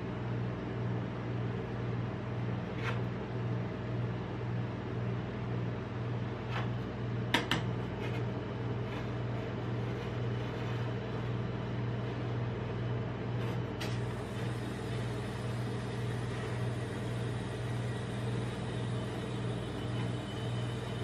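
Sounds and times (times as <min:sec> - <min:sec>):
machine humming: 0:00.0 - 0:21.0
spatula scraping: 0:02.6 - 0:03.1, 0:07.7 - 0:14.0.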